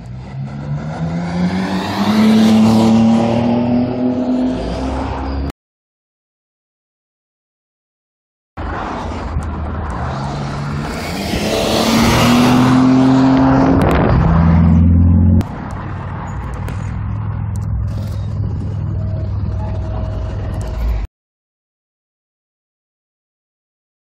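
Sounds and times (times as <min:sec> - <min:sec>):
car engine accelerating: 0:00.0 - 0:05.5, 0:08.6 - 0:21.1
road noise: 0:00.0 - 0:05.5, 0:08.6 - 0:21.1.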